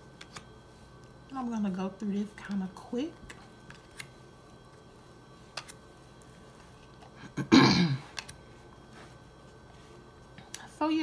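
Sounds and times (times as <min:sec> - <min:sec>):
cards flipped and set down: 0:00.2 - 0:00.5, 0:03.2 - 0:04.2, 0:05.5 - 0:05.8, 0:08.1 - 0:08.4
woman clearing her throat: 0:07.4 - 0:08.0.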